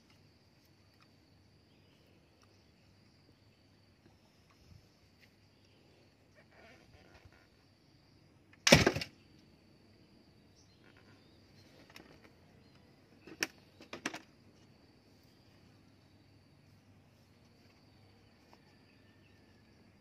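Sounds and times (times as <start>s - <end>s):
rubber band snapping with sharp crack: 8.6s - 9.1s.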